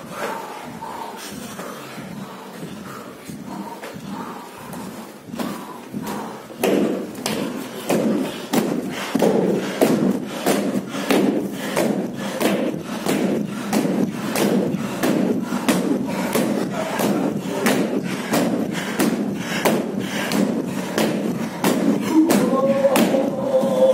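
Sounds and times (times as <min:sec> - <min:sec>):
men chanting together: 0:12.0 - 0:23.9.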